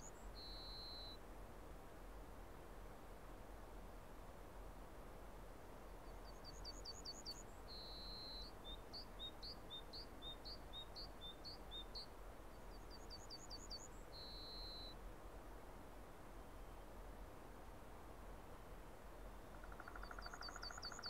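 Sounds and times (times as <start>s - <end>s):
songbird singing: 0.0s - 1.2s, 5.8s - 15.0s, 16.4s - 17.0s, 18.5s - 21.0s
faint steady hiss: 0.0s - 21.0s.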